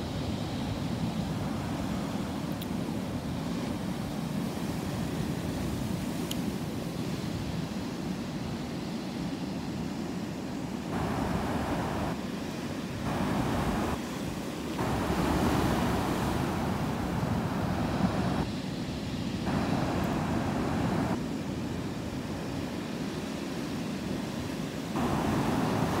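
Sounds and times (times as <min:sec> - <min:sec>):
surf breaking over rocks: 0:10.9 - 0:12.2, 0:13.0 - 0:18.5, 0:19.5 - 0:21.2, 0:25.0 - 0:26.0.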